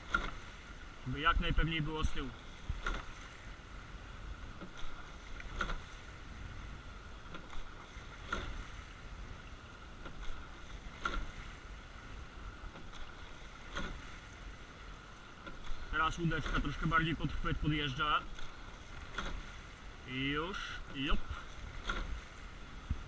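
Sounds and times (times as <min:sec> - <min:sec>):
oars knocking in oarlocks: 0:00.0 - 0:00.5, 0:02.6 - 0:03.3, 0:04.4 - 0:06.1, 0:07.2 - 0:08.7, 0:10.0 - 0:11.5, 0:12.7 - 0:14.2, 0:15.4 - 0:19.6, 0:20.9 - 0:23.0
oar blades splashing: 0:00.0 - 0:03.6, 0:04.4 - 0:23.0
water hissing along hull: 0:00.0 - 0:23.0.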